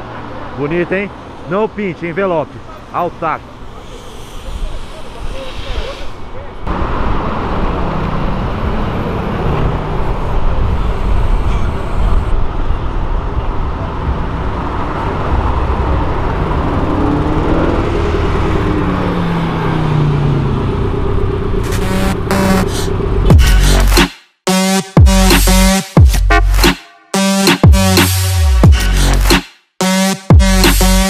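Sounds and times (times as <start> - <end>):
sports cars driving past: 0.0 - 23.4
steady traffic noise: 0.0 - 31.0
car engine accelerating: 6.4 - 24.0.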